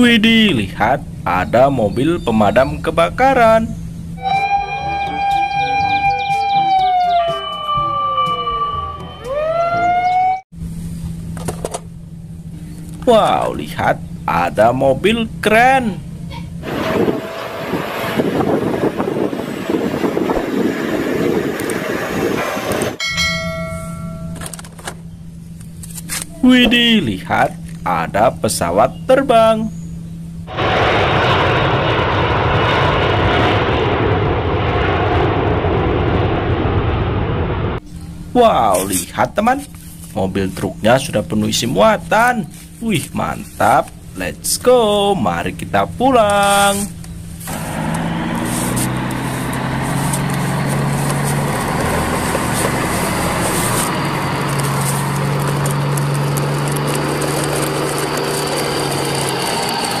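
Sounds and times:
low hum: 0.0s - 60.0s
jet airliner engines rushing: 12.6s - 23.0s, 30.4s - 44.5s, 45.5s - 60.0s
toy trucks rattling over paving: 49.5s - 60.0s.

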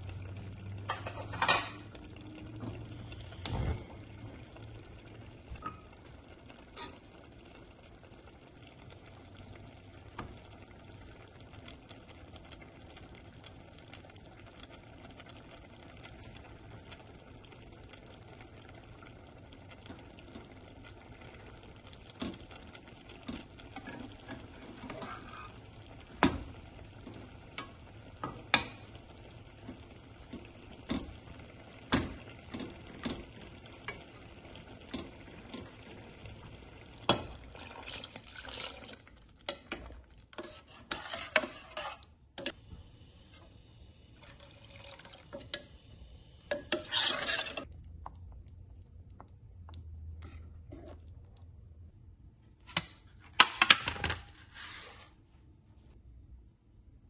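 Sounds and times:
butter frying in a pan: 0.0s - 42.5s, 44.1s - 47.8s
spatula scraping and tapping pan: 23.2s - 29.0s, 29.6s - 31.3s, 31.9s - 35.8s, 39.5s - 42.6s, 46.5s - 47.7s.

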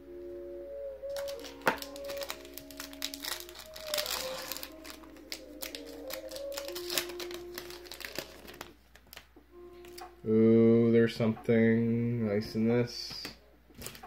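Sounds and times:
soft background music: 0.0s - 14.0s
foil wrapper crinkling and tearing: 1.1s - 9.3s.

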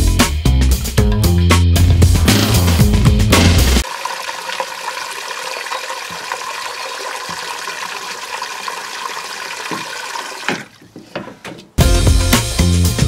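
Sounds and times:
water splashing into metal saucepan: 3.8s - 10.9s.

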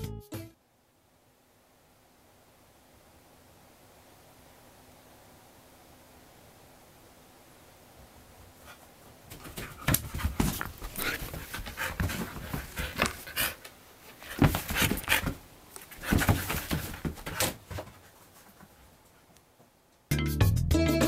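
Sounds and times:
background music: 0.0s - 0.6s, 20.1s - 21.0s
dog panting: 10.0s - 15.4s.

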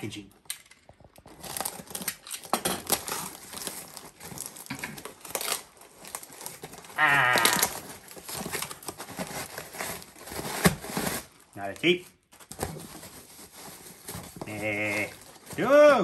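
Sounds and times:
packaging crinkling and tearing: 0.5s - 15.9s.

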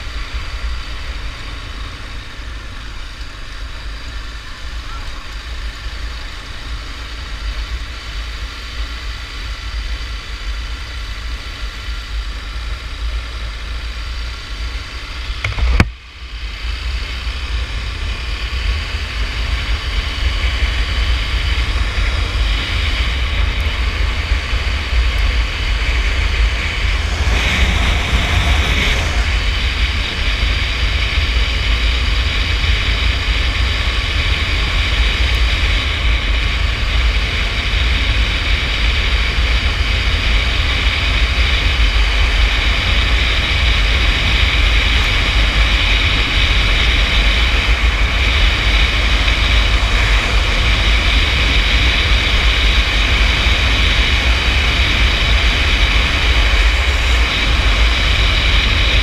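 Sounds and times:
motorcycle engine running: 0.0s - 59.0s
sharp click: 15.4s - 16.0s
wind buffeting microphone: 17.4s - 59.0s.

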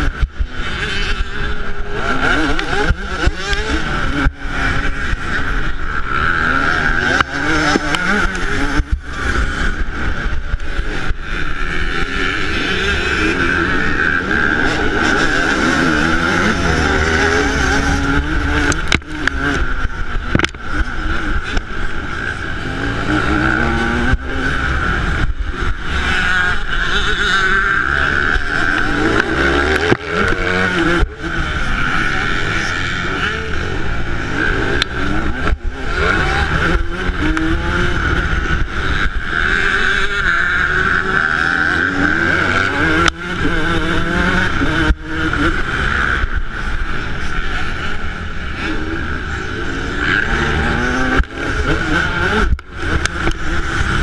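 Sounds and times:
motocross engine revving: 0.0s - 54.0s.

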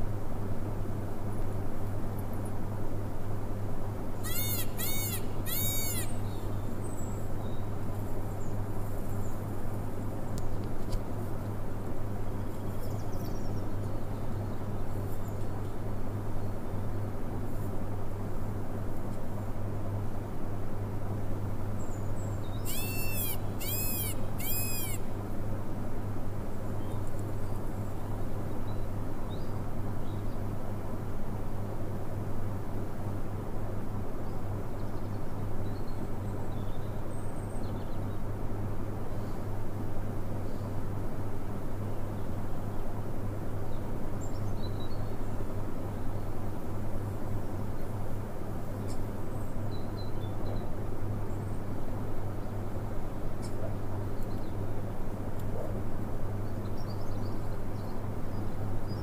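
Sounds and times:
steady low hum: 0.0s - 59.0s
peacock calling: 4.2s - 6.3s, 22.6s - 25.1s.

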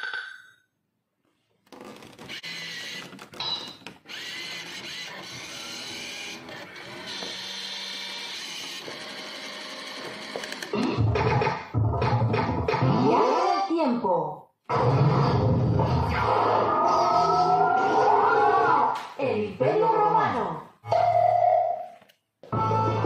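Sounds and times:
small motor whirring: 2.2s - 3.1s, 4.0s - 10.6s.

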